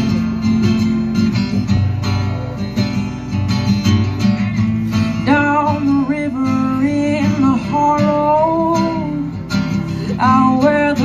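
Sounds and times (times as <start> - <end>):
acoustic guitar strumming: 0.0 - 11.0
person singing: 5.2 - 9.4, 10.1 - 11.0.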